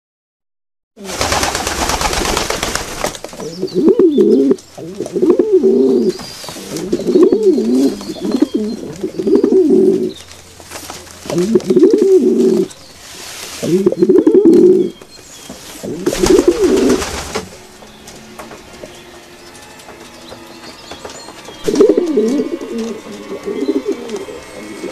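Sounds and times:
pigeons cooing: 3.3s - 10.4s, 11.2s - 12.8s, 13.4s - 15.0s, 15.6s - 19.5s, 20.1s - 24.9s
loud rustling hiss: 12.3s - 17.6s.

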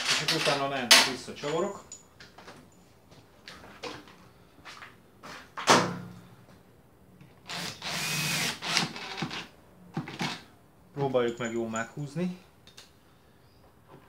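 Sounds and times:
power screwdriver running: 7.5s - 9.3s.

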